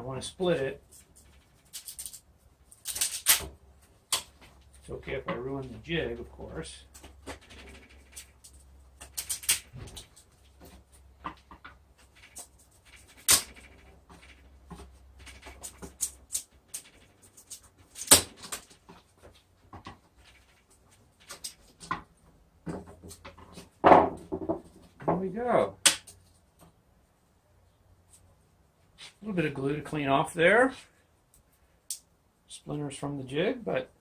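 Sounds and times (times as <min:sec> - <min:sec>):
wood cracking and snapping: 0:00.9 - 0:04.6, 0:06.9 - 0:23.6
small wood creaks and clicks: 0:02.8 - 0:25.2.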